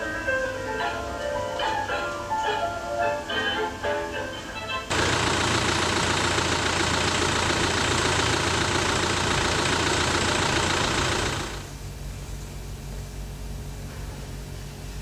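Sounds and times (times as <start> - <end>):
motor humming: 4.9 - 11.9.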